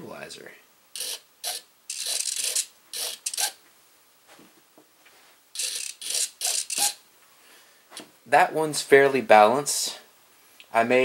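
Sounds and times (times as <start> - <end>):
servo buzzing: 1.0 - 3.6, 5.6 - 7.0.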